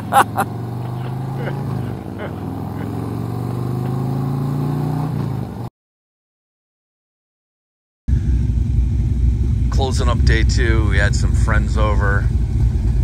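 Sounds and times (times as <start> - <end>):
loud low rumble: 8.1 - 13.0
motorcycle engine running: 8.1 - 13.0.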